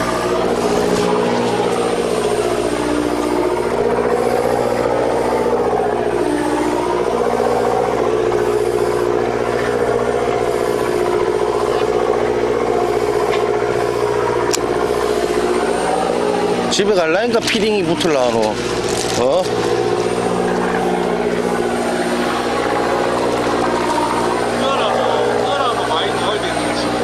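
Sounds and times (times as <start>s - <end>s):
boat engine running: 0.0s - 27.0s.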